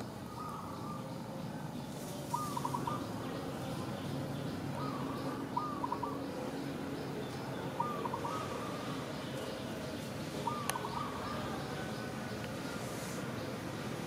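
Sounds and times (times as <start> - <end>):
outdoor hiss: 12.1 - 14.0.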